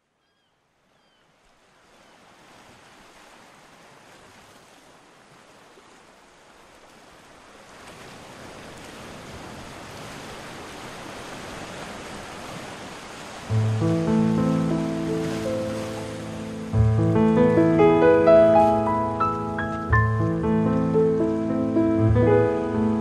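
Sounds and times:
faint gull call: 0.2 - 1.3
surf-like rushing noise: 7.6 - 23.0.

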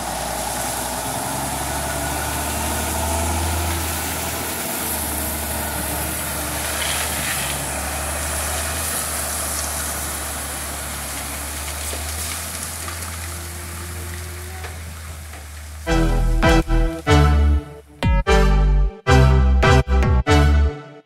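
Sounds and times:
truck diesel engine running: 0.0 - 20.8
gravel sliding out: 0.1 - 17.2.

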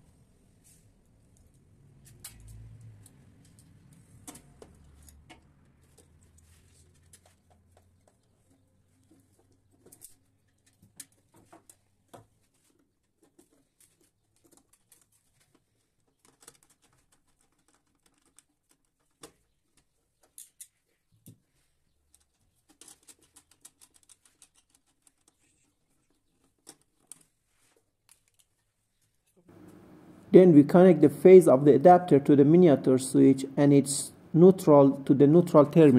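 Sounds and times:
clicks and taps of wiring: 1.3 - 29.8.

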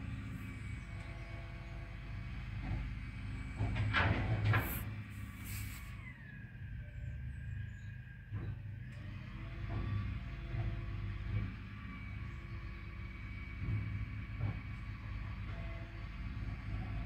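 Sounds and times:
lorry engine rumbling: 0.0 - 17.0
clatter and hiss: 3.7 - 6.0.

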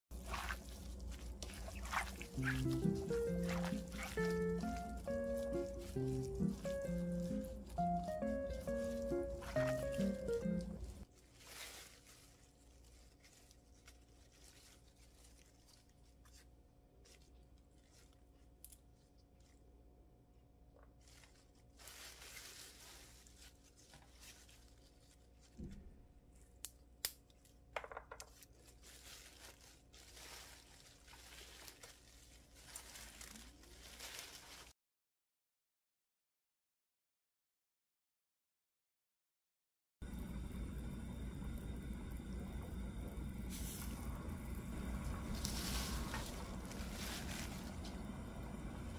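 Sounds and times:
rustling of leafy greens: 0.1 - 19.6, 21.0 - 25.6, 28.2 - 34.8, 43.5 - 48.9
crisp snaps of stems: 26.6 - 27.4.

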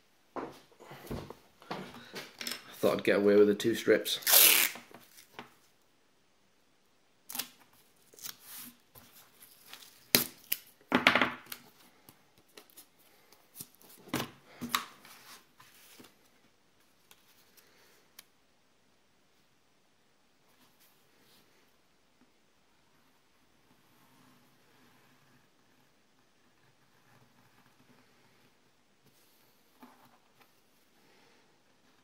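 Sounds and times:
tape ripping off roll: 4.2 - 5.4.

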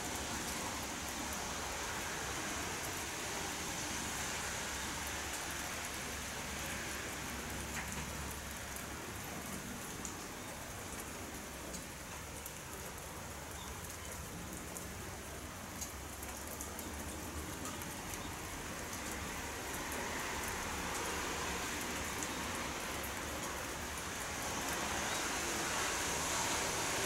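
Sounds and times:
rain falling: 0.0 - 27.0.

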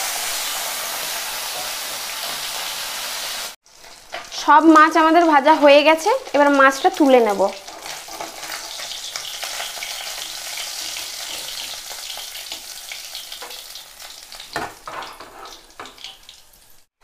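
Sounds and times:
fish sizzling in hot oil: 0.0 - 16.9
metal spatula scraping and tapping: 7.6 - 12.7, 13.3 - 13.7, 14.4 - 16.3.

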